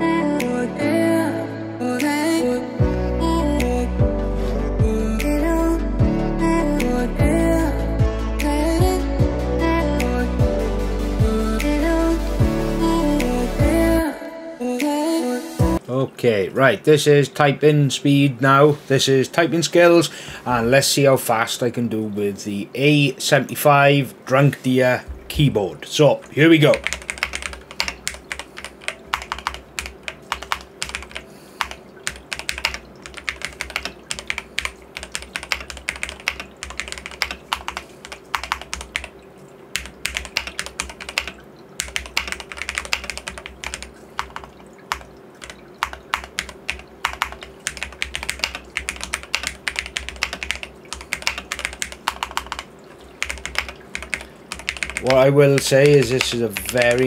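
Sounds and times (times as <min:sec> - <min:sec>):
fast typing key clacks: 0:26.6 - 0:39.1, 0:39.8 - 0:57.0.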